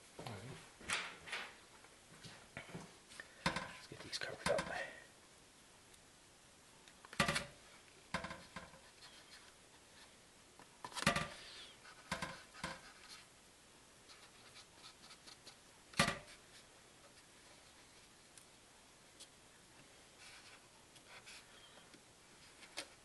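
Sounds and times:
pencil scratches and knocks: 11.0s - 13.2s.

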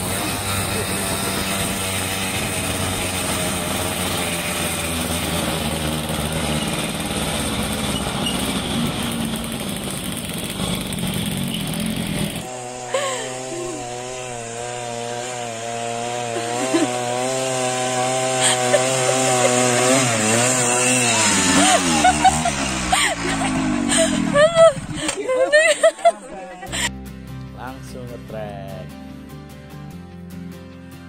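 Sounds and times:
motorcycle engines running: 0.0s - 26.9s
motorcycle labouring up cobbled track: 0.0s - 26.9s
road rumble: 0.0s - 26.9s
wind: 0.0s - 26.9s.

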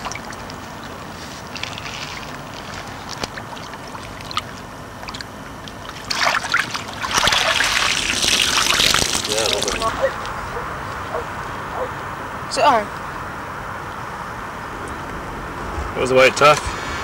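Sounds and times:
fish splashing in water: 0.0s - 10.4s
shallow water lapping: 0.0s - 12.0s.

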